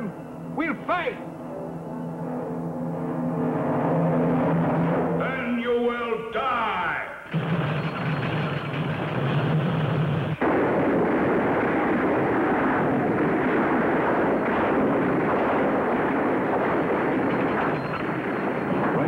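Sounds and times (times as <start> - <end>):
cartoon gunfire and explosions: 7.3 - 19.0.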